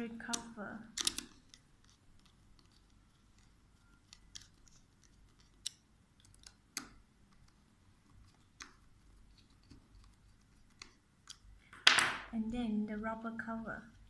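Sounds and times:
small plastic clicks and taps: 0:04.1 - 0:07.6.

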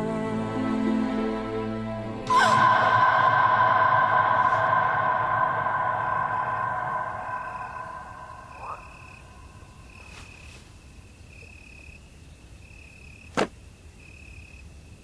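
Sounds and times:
music: 0:00.0 - 0:07.0
insect chirping: 0:02.4 - 0:15.0.

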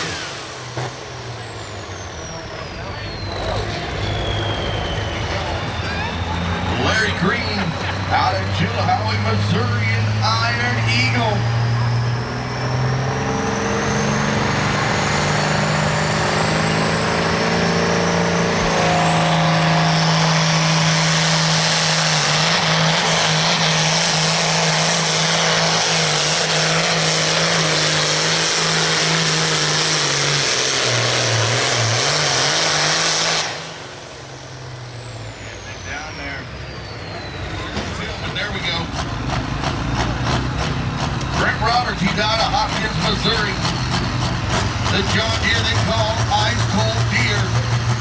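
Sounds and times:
diesel tractor engine under load: 0:00.0 - 0:48.0
turbo whistle climbing in pitch: 0:02.3 - 0:06.5, 0:17.5 - 0:24.4.

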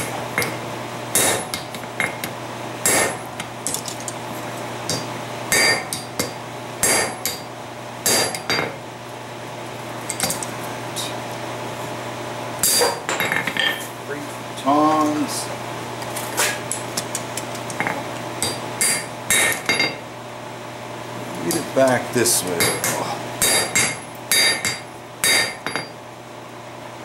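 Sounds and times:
hammer striking steel on anvil: 0:01.2 - 0:03.2, 0:04.9 - 0:08.8, 0:12.6 - 0:13.8, 0:18.4 - 0:20.0, 0:22.6 - 0:26.0.

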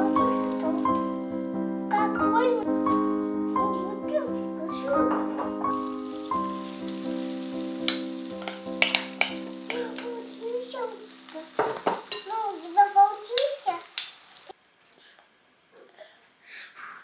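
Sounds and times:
batter sizzling in hot oil: 0:00.0 - 0:01.1, 0:05.7 - 0:14.6
background music with held notes: 0:00.0 - 0:11.3
spoon scraping a pan: 0:05.7 - 0:10.2, 0:11.4 - 0:12.6.

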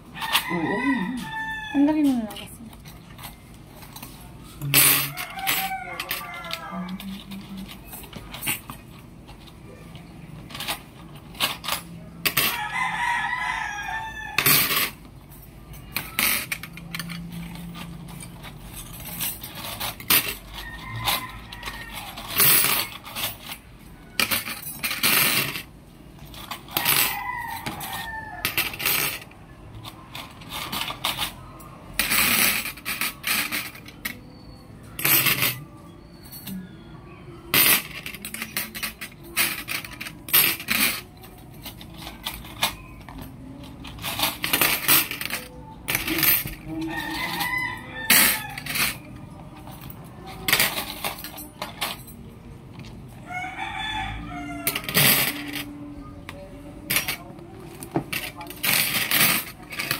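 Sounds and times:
rooster crowing: 0:00.1 - 0:02.1, 0:04.9 - 0:07.4, 0:12.4 - 0:14.9, 0:20.5 - 0:22.6, 0:26.6 - 0:29.2, 0:46.7 - 0:49.1, 0:53.2 - 0:55.9.

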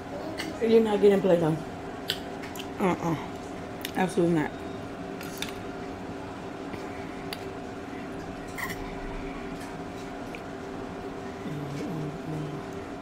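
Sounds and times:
steady low hum: 0:00.0 - 0:13.0
person humming: 0:11.4 - 0:12.8.

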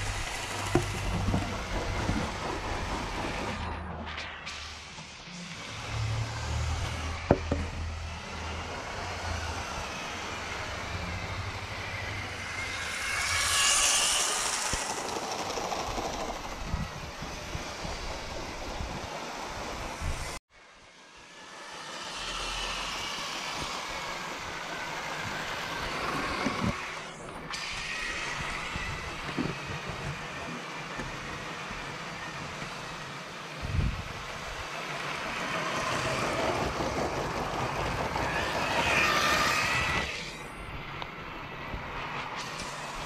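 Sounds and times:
toy train motor whine: 0:00.0 - 0:03.6, 0:05.4 - 0:20.2, 0:20.8 - 0:40.8.

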